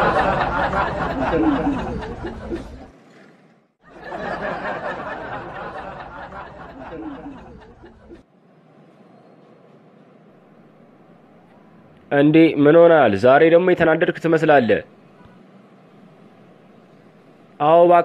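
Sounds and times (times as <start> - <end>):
canned audience laughter: 0.0 - 3.0, 3.8 - 8.2.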